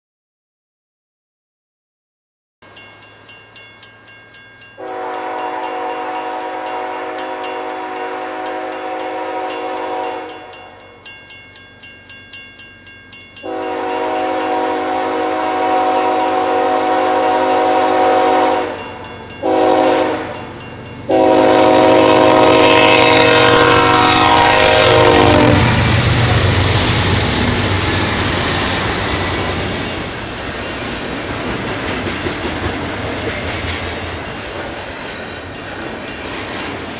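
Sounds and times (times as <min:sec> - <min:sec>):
crossing bell ringing: 0:02.6 - 0:25.7, 0:26.6 - 0:36.9
train wheels on rails: 0:02.7 - 0:36.9
locomotive air horn: 0:04.8 - 0:10.8, 0:13.4 - 0:20.5, 0:21.1 - 0:29.8.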